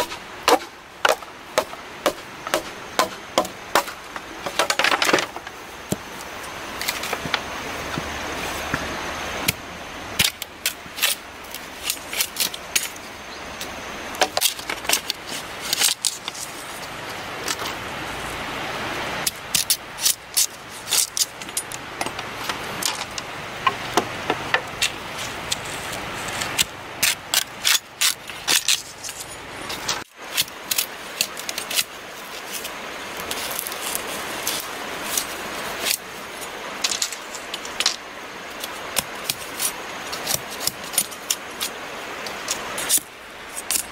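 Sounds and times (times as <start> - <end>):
machete chopping bamboo: 0.0 - 6.1, 39.0 - 41.8
background hiss: 0.0 - 43.9.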